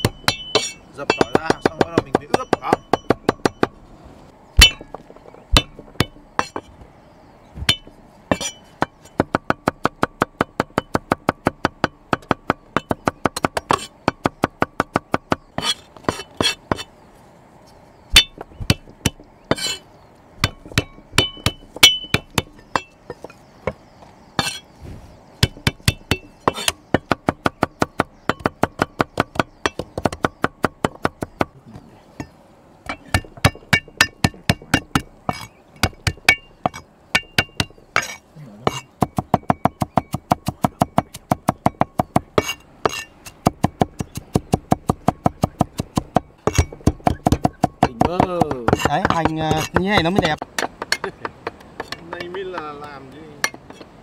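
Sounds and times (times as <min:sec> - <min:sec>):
knife chopping garlic: 0:37.4 - 0:50.4.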